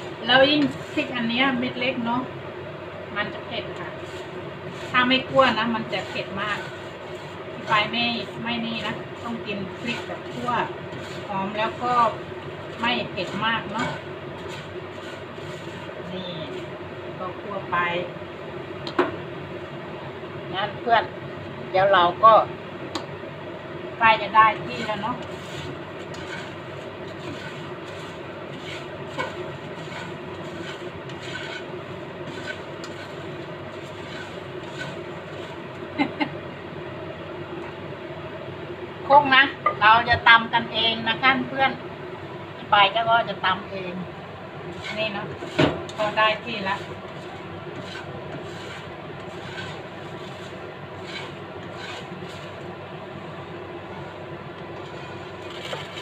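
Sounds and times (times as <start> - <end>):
spatula scraping frying pan: 0.0 - 1.8, 3.6 - 16.8, 24.4 - 36.1, 44.6 - 52.8, 53.9 - 56.0
dried chilies rustling: 3.7 - 16.8, 24.6 - 36.0, 44.7 - 52.8.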